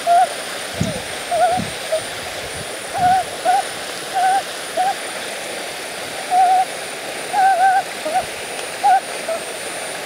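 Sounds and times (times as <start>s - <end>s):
bird hooting: 0.0s - 2.2s, 2.9s - 5.1s, 6.3s - 9.6s
steady background hiss: 0.0s - 10.0s.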